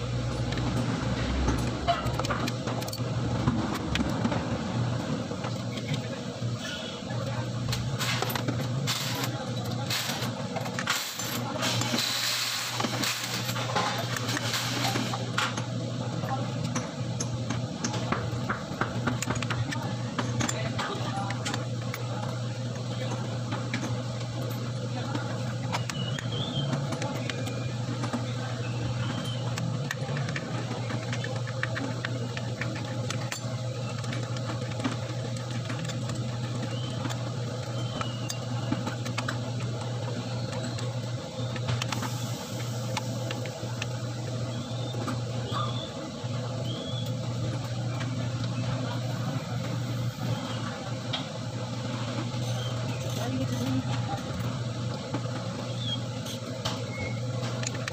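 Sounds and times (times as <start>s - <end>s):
steady low hum: 0.0s - 57.9s
metallic clicks on engine parts: 56.2s - 57.9s.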